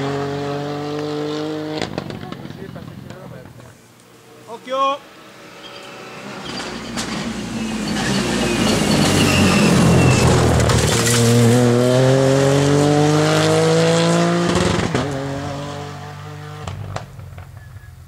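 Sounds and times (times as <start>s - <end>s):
rally car passing at speed: 0.0s - 3.5s, 5.0s - 17.4s.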